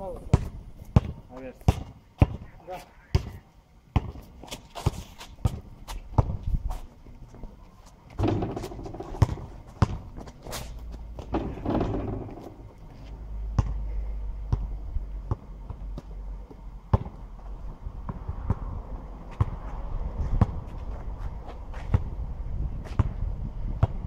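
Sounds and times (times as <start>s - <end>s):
basketball bouncing on asphalt: 0.1s - 2.5s, 3.1s - 6.8s, 8.1s - 12.8s, 13.5s - 13.8s, 14.4s - 24.0s
sneaker scuffs: 7.8s - 11.4s, 19.3s - 22.1s.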